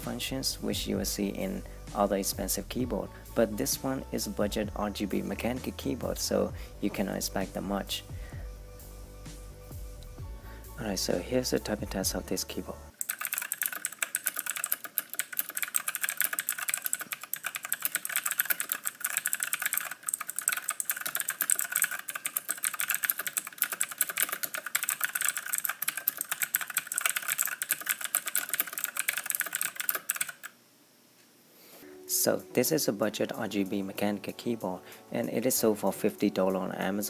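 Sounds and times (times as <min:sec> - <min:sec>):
mechanical keyboard typing: 0:12.9 - 0:30.5.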